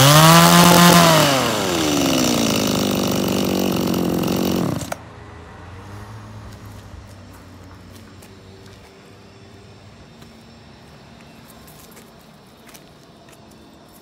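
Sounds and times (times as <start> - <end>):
hedge trimmer engine idling: 0.0 - 5.0.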